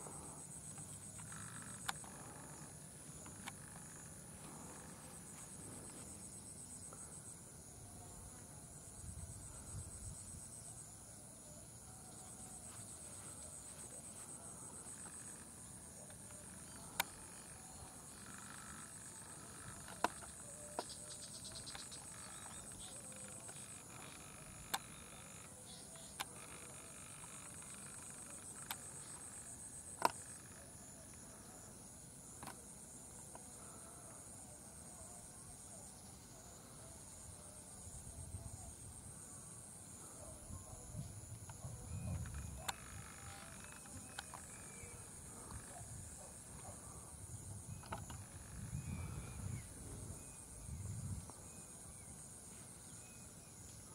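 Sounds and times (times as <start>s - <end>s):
insects chirring: 0.0s - 53.9s.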